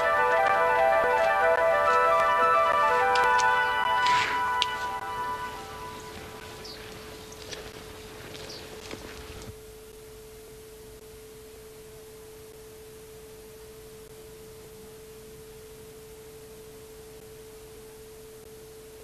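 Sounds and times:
closing music: 0.0s - 6.8s
steady electronic tone: 0.0s - 6.9s.

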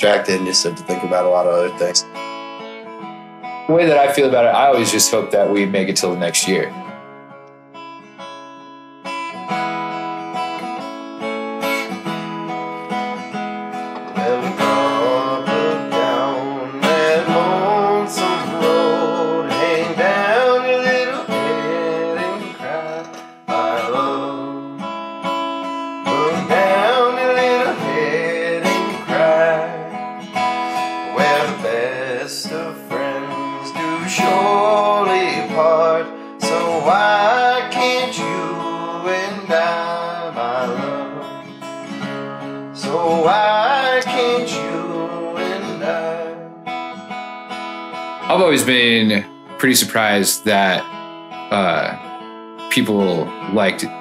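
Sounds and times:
strummed acoustic guitar: 0.0s - 54.0s
mandolin: 13.0s - 24.3s
upright bass: 48.3s - 50.8s, 51.5s - 52.0s.

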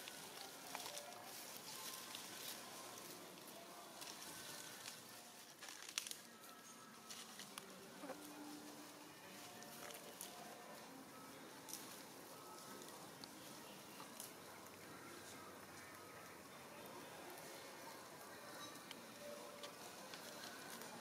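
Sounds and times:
dry leaves crackling: 0.0s - 10.6s.

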